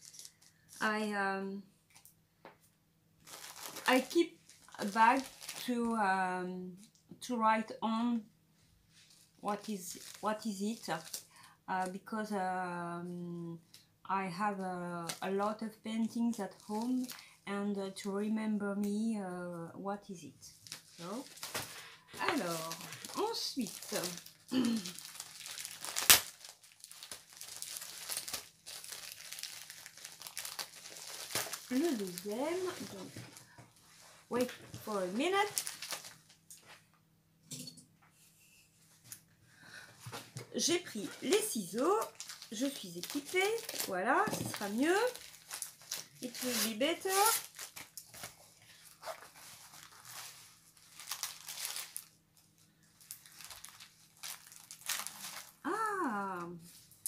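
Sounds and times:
plastic packaging crinkling: 0:00.0 - 0:00.8, 0:03.2 - 0:05.7, 0:09.5 - 0:11.3, 0:16.5 - 0:17.3, 0:20.6 - 0:33.6, 0:34.3 - 0:36.8, 0:40.8 - 0:55.8
paper and canvas rustling: 0:20.7 - 0:36.9, 0:40.1 - 0:52.0
sharp plastic crack: 0:25.0 - 0:28.4.

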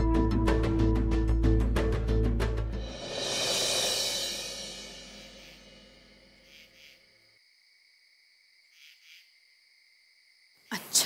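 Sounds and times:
background music: 0:00.0 - 0:06.4
shimmering cymbal swell: 0:02.8 - 0:06.4
faint cricket chirps: 0:03.4 - 0:11.0.

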